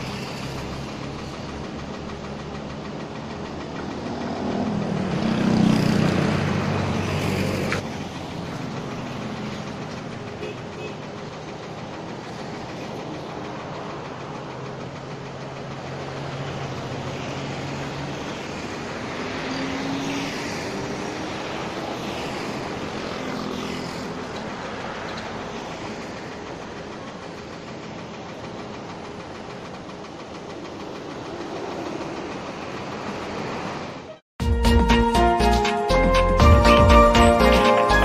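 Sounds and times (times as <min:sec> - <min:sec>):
crane engine running: 0:00.0 - 0:34.1
constant rushing noise: 0:00.0 - 0:34.2.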